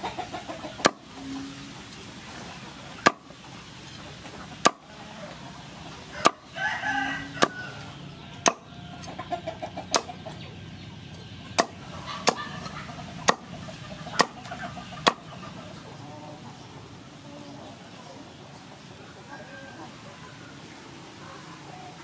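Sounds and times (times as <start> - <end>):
chicken clucking: 0.0 - 22.0
cleaver chopping on wooden board: 3.0 - 3.2, 4.6 - 4.8, 6.2 - 6.4, 8.4 - 8.6, 11.6 - 12.5, 13.2 - 13.5, 14.2 - 14.4.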